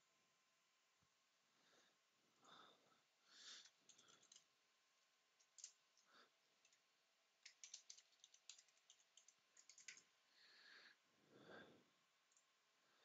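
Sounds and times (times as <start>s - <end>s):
keyboard typing: 3.6s - 4.5s, 5.4s - 5.8s, 7.4s - 10.1s.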